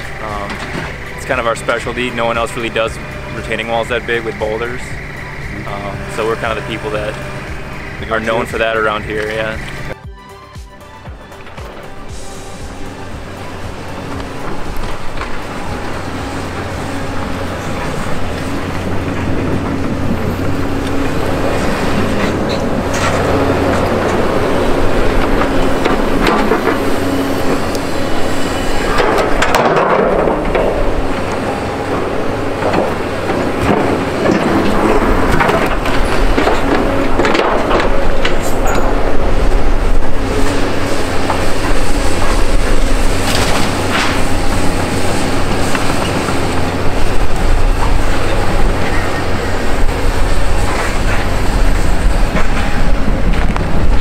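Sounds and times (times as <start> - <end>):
diesel engine drone: 0.0 - 54.0
metal clanks: 28.3 - 40.2.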